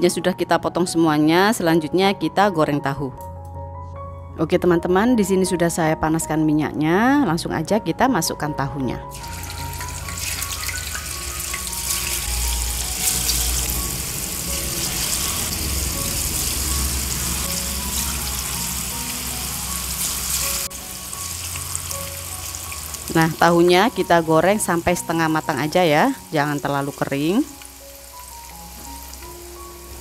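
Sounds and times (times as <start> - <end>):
tofu sizzling in hot oil: 9.1 - 24.2, 25.6 - 30.0.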